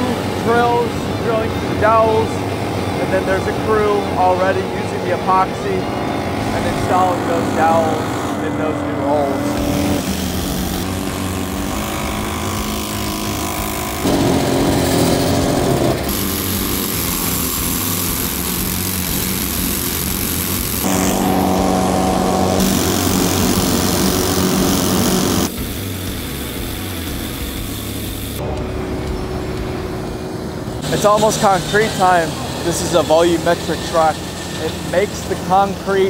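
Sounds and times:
machinery engines droning: 0.0 - 36.0
drill boring into concrete: 9.4 - 28.4, 30.8 - 36.0.

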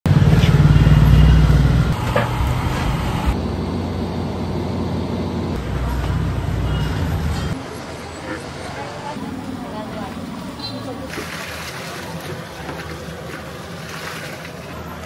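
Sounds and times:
workshop noise: 0.0 - 15.0
gas burner roaring: 0.1 - 6.8.

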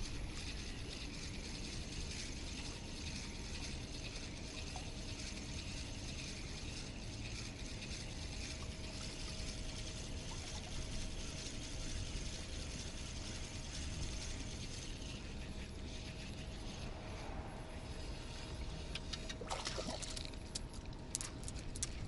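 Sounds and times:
fishing reel clicking whir: 0.0 - 21.9.

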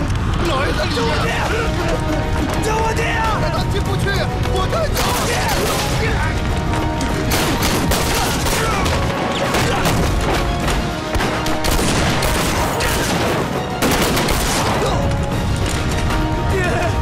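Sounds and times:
dramatic film score: 0.0 - 17.0
gunfire: 7.3 - 10.5, 11.1 - 15.0.

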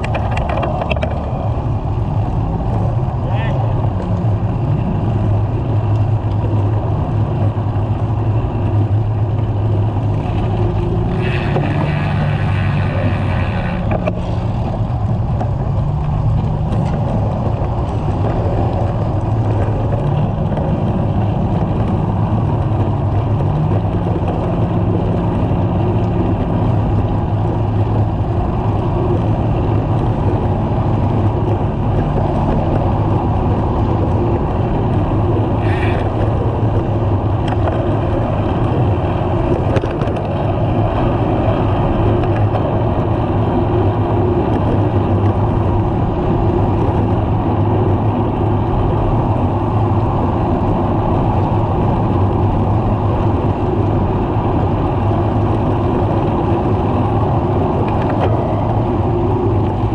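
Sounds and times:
bicycle road noise: 0.0 - 59.9
car traffic passing: 0.0 - 59.9
wind rumble on microphone: 0.0 - 59.9.

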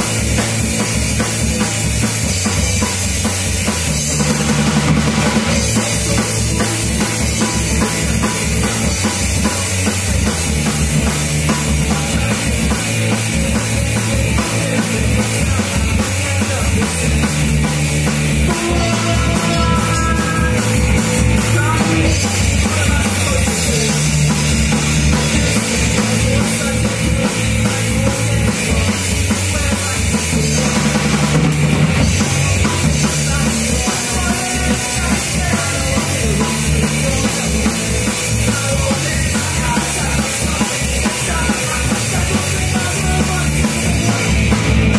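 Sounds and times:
drum kit: 0.0 - 44.9
electric bass: 0.0 - 44.9
electric guitar: 0.0 - 44.9.

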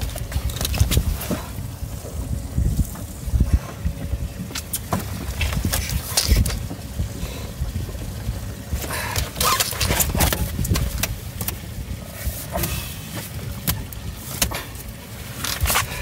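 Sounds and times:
fishing gear knocking and rattling: 0.0 - 1.4, 4.5 - 6.9, 8.8 - 11.7
steady low rumble: 0.0 - 16.0.

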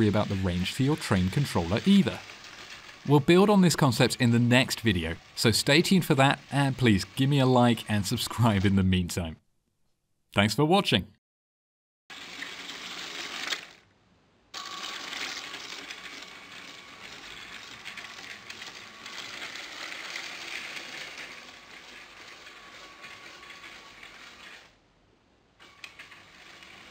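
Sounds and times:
clatter of wheels and gears: 0.0 - 7.3, 14.6 - 24.7, 25.6 - 26.9
toy train motor whine: 0.0 - 8.8, 12.1 - 13.8, 14.6 - 24.8, 25.6 - 26.9.

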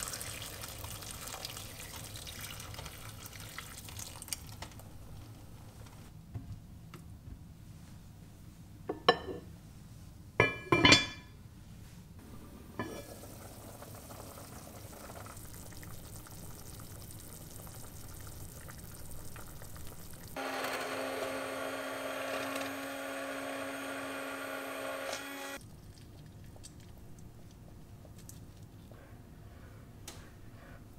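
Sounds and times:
soup simmering hiss: 0.0 - 4.5, 12.2 - 20.4
immersion blender running: 20.4 - 25.6.

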